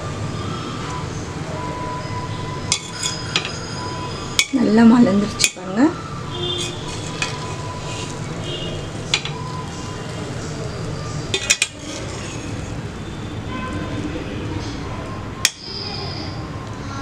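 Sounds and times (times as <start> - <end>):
ladle scraping rice in a pot: 2.7 - 3.5, 6.5 - 8.4, 11.3 - 12.8
ladle clinking against metal pot: 2.7 - 3.6, 4.4 - 4.6, 6.5 - 8.1, 9.1 - 9.5, 11.3 - 12.7.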